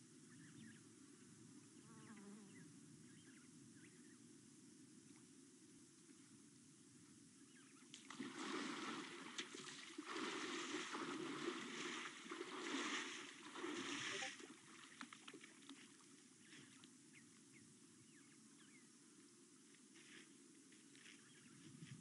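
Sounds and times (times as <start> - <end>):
insects humming: 0.0 - 21.8
elephant splashing through water: 8.1 - 16.0.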